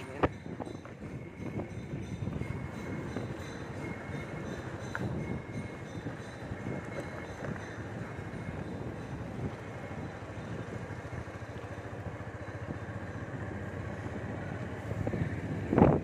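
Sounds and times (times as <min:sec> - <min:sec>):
road noise: 0:00.0 - 0:16.0
motorcycle engine running: 0:06.4 - 0:16.0.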